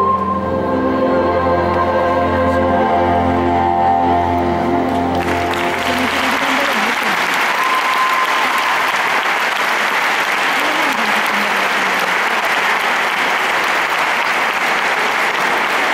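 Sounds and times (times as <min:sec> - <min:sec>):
audience applauding: 0:04.9 - 0:15.9.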